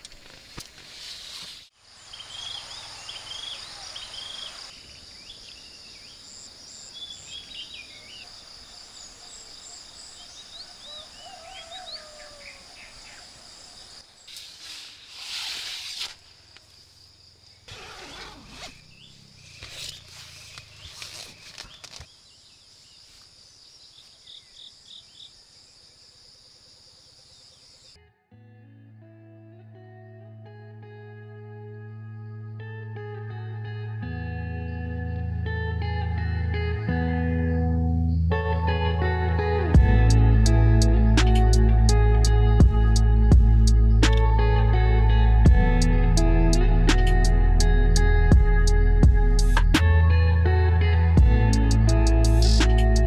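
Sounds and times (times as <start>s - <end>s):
insects trilling: 1.8s - 28.0s
music: 28.0s - 53.0s.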